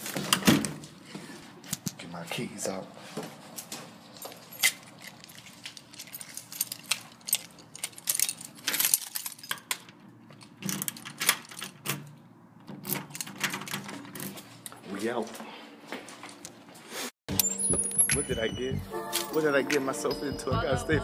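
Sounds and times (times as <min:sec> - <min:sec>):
keys jangling against door lock: 0:04.1 - 0:12.0, 0:12.8 - 0:13.9.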